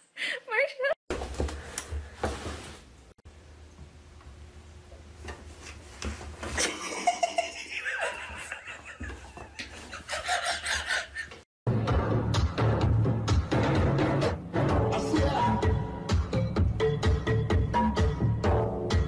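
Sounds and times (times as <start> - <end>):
person laughing: 6.6 - 11.4.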